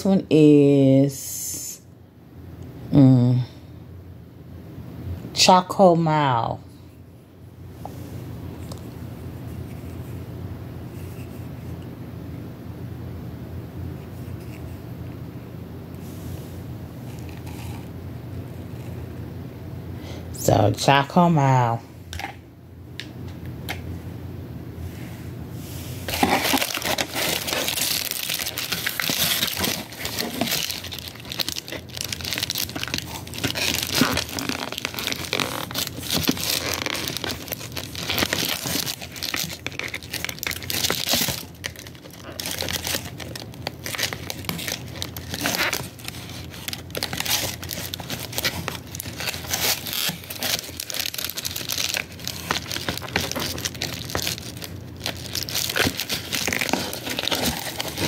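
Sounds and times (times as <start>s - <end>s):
plastic wrapping crinkling: 26.1s - 58.0s.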